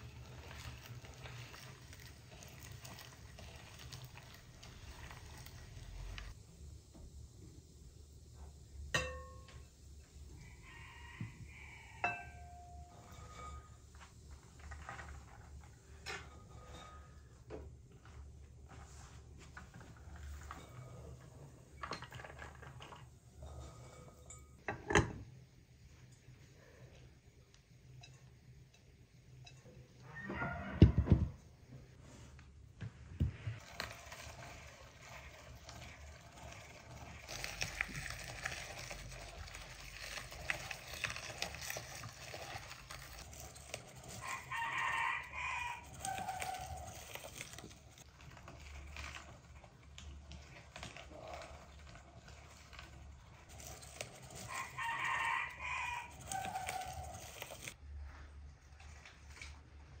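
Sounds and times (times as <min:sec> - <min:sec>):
rooster crowing: 0:10.3 - 0:13.1, 0:30.0 - 0:31.4, 0:44.0 - 0:47.0, 0:54.4 - 0:57.6.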